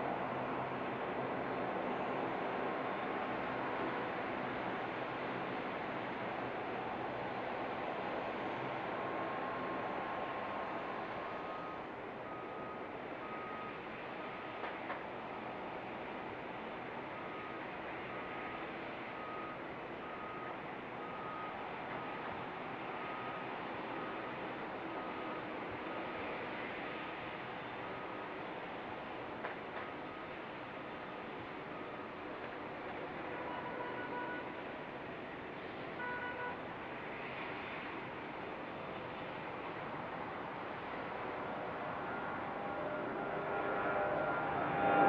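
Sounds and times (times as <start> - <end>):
distant airport noise: 0.0 - 45.0
distant jet engines at takeoff: 0.0 - 45.0
traffic noise: 0.0 - 45.0
vehicle reversing alarm beeping: 9.0 - 14.6, 17.2 - 26.4.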